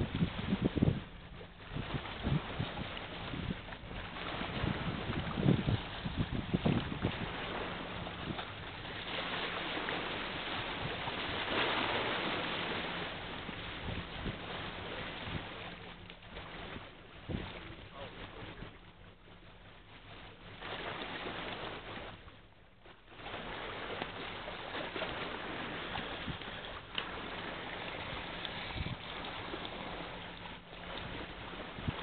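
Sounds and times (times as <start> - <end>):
wind on microphone: 0.0 - 18.8, 25.5 - 32.0
distant engine hum: 0.0 - 32.0
water noise: 0.0 - 32.0
wind thumps: 1.7 - 8.6.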